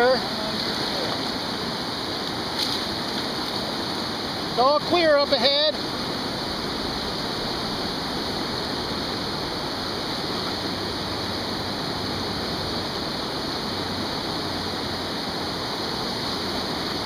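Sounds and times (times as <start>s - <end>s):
whitewater rapids rushing: 0.0s - 17.0s.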